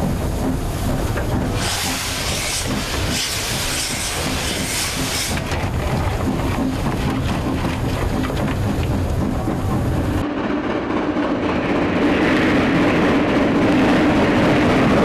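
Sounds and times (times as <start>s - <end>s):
steam hissing: 0.0s - 6.7s
locomotive low rumble: 0.0s - 15.0s.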